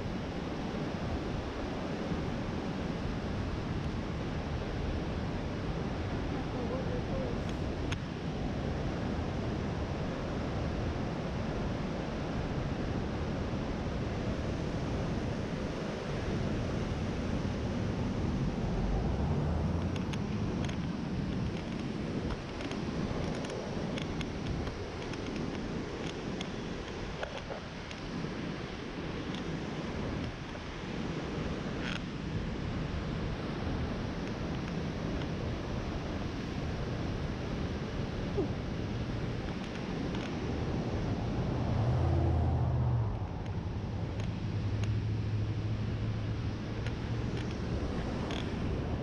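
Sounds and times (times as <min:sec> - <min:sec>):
whitewater roaring: 0:00.4 - 0:21.2, 0:34.8 - 0:49.0.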